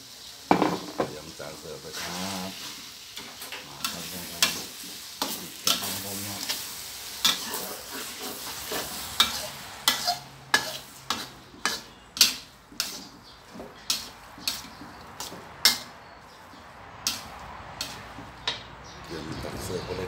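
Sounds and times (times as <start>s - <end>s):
faint frying sizzle: 0.0s - 18.6s
spatula clanking in metal wok: 8.6s - 13.1s, 13.8s - 15.9s, 17.0s - 18.7s.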